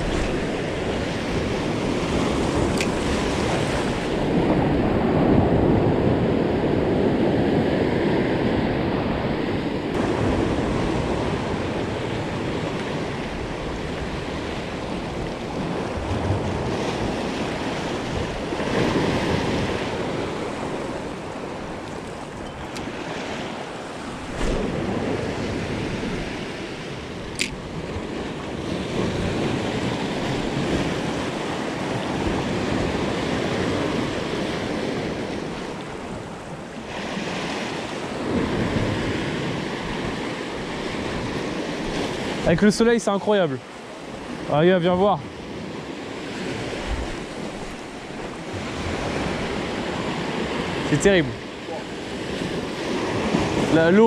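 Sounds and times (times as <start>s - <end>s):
surf breaking over rocks: 0.0s - 5.7s, 9.9s - 27.7s, 46.5s - 54.0s
wind on microphone: 0.0s - 42.6s, 44.0s - 54.0s.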